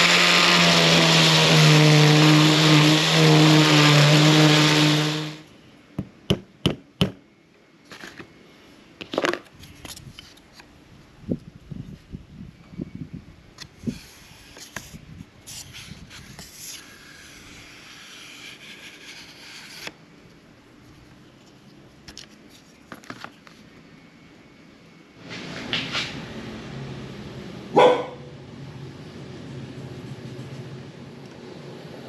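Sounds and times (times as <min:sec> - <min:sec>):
dog barking: 0:27.7 - 0:28.3.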